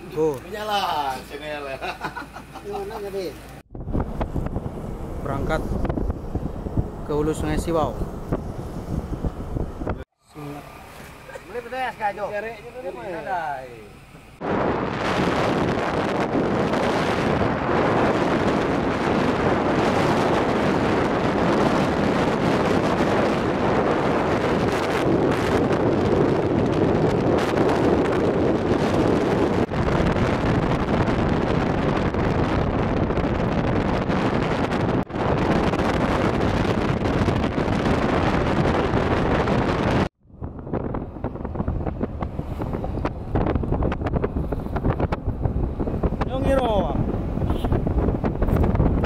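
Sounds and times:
wind buffeting microphone: 0:03.6 - 0:10.2, 0:14.2 - 0:49.0.

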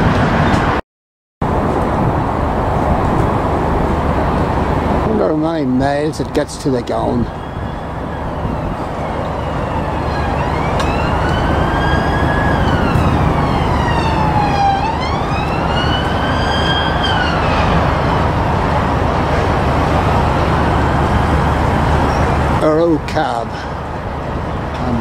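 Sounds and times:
steady low rumble: 0:01.4 - 0:25.0
siren wailing: 0:07.3 - 0:18.4.

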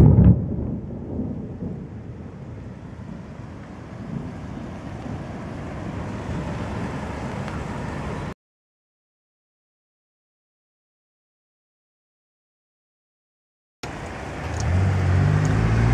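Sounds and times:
thunder rumbling: 0:00.0 - 0:08.3.

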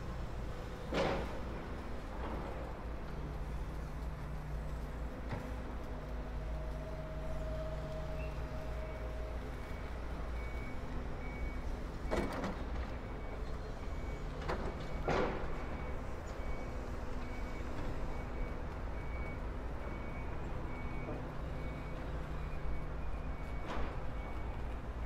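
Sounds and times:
low rumble of traffic: 0:00.0 - 0:25.0
reversing alarm beeps: 0:06.8 - 0:12.4, 0:13.0 - 0:25.0.

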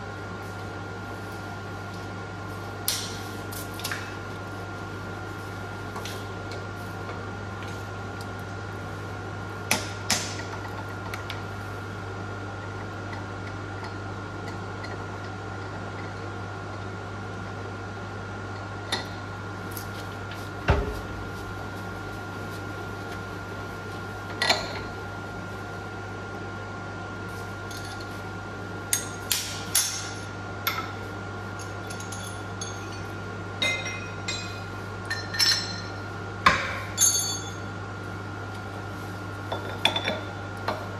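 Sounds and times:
machine hum: 0:00.0 - 0:40.9
metal tools clinking: 0:37.0 - 0:37.6.

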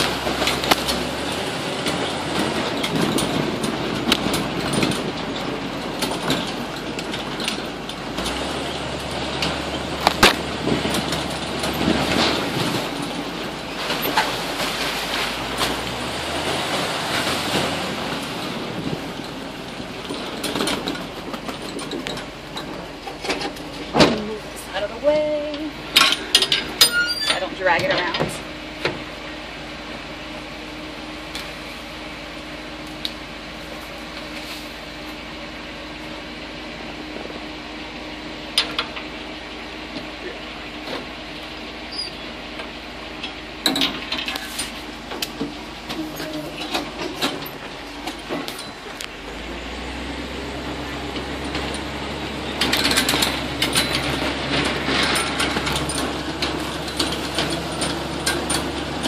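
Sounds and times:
metal rattles and knocks: 0:00.0 - 0:14.4, 0:17.4 - 0:29.1, 0:51.1 - 0:59.0
swamp buggy engine running: 0:00.0 - 0:59.0.

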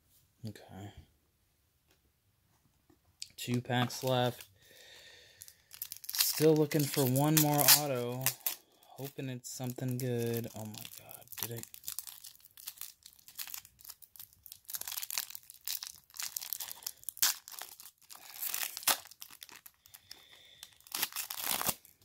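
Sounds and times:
foil wrapper tearing and crinkling: 0:05.4 - 0:08.8, 0:09.6 - 0:22.0.

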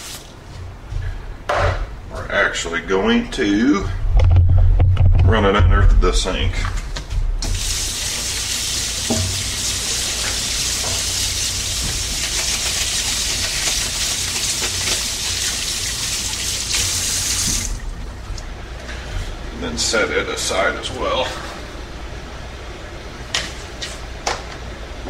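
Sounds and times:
faucet water splashing: 0:07.4 - 0:18.1.

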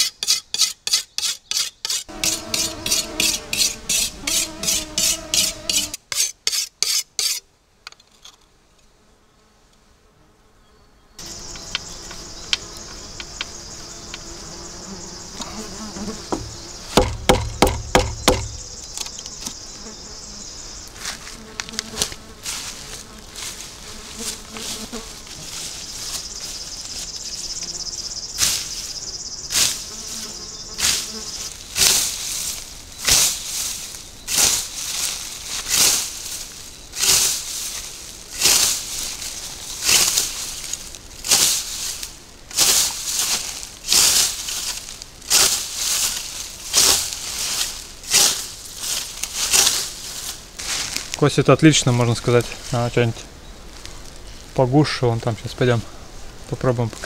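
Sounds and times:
insects buzzing and chirping: 0:00.0 - 0:07.4, 0:08.3 - 0:57.0
scythe swishing through grass: 0:31.8 - 0:51.1.

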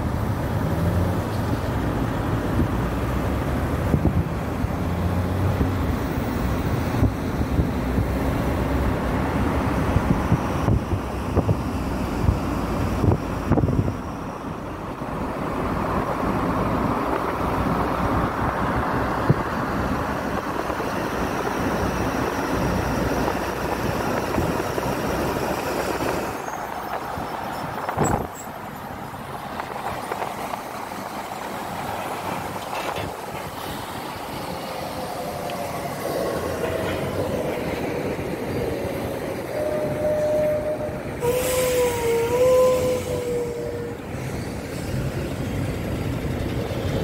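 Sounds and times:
car engine and road rumble: 0:00.0 - 0:47.0
wind buffeting microphone: 0:01.7 - 0:47.0
wind on microphone: 0:05.4 - 0:14.2, 0:14.9 - 0:28.4.

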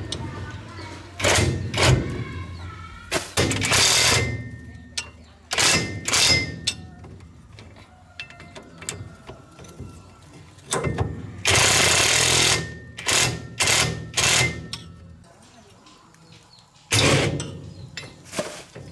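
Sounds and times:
impact wrench hammering: 0:03.4 - 0:04.6, 0:10.7 - 0:14.9.

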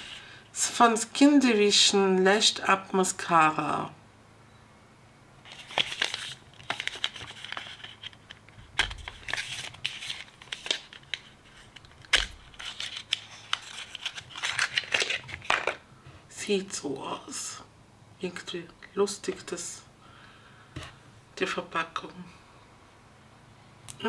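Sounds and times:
small clicks and crinkles: 0:05.4 - 0:15.8
cardboard box rustling: 0:05.5 - 0:08.2.

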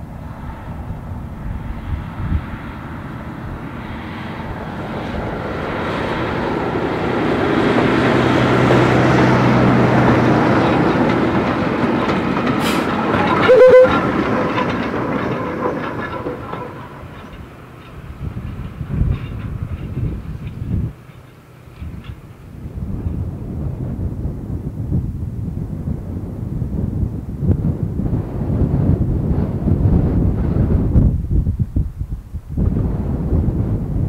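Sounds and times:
diesel locomotive passing: 0:00.0 - 0:34.0
wheels clicking over rail joints: 0:03.0 - 0:23.4.

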